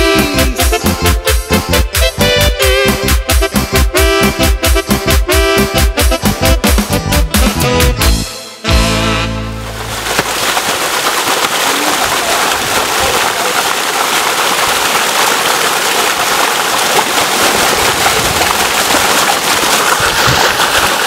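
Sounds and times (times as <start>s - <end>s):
water gushing over rocks: 9.6s - 21.0s.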